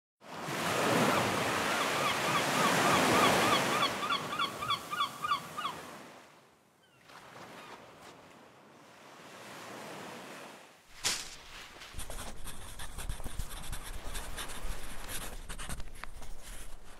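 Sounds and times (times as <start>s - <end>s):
ocean surf washing: 7.2s - 15.0s.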